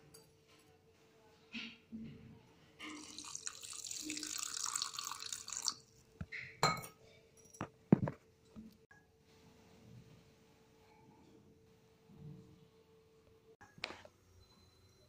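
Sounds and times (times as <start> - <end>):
water splashing into jar: 2.8 - 5.8.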